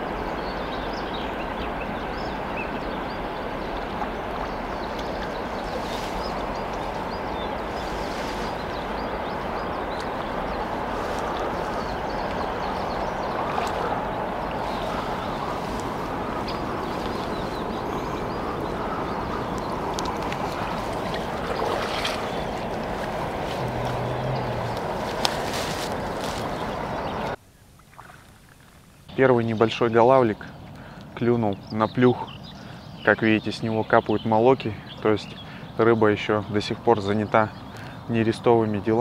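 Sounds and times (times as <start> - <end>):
river water rushing over riffle: 0.0 - 28.3.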